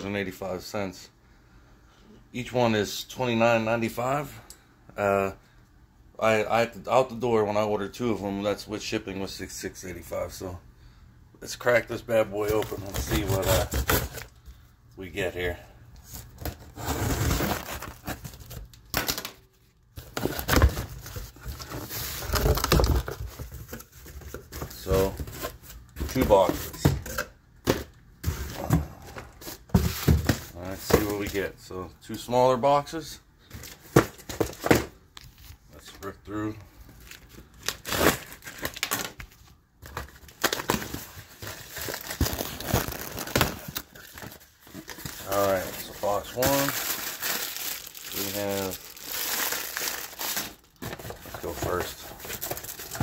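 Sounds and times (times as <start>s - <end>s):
cardboard box tearing: 12.8s - 14.3s, 16.4s - 18.4s
cardboard rustling and bumping: 20.0s - 27.1s, 27.7s - 31.4s, 50.8s - 53.0s.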